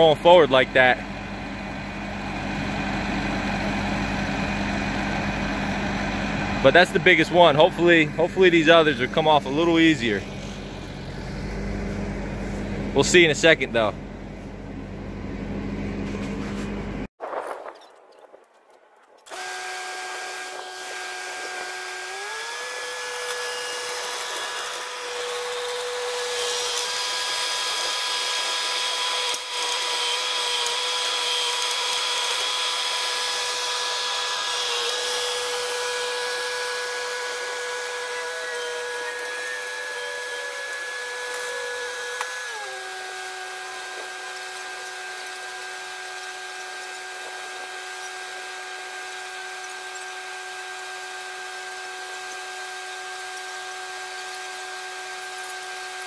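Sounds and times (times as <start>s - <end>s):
skid-steer loader engine whining: 0.0s - 17.1s, 19.3s - 45.3s.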